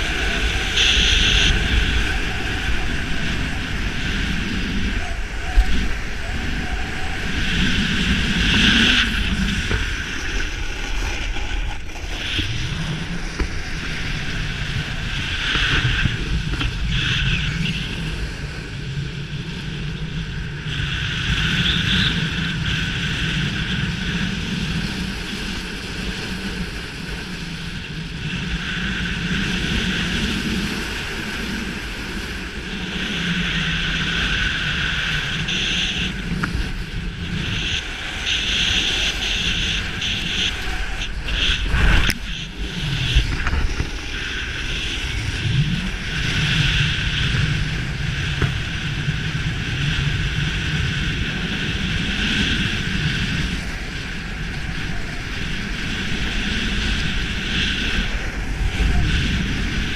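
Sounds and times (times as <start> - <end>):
snowboard scraping over snow: 0.0 - 59.9
wind on microphone: 0.0 - 59.9.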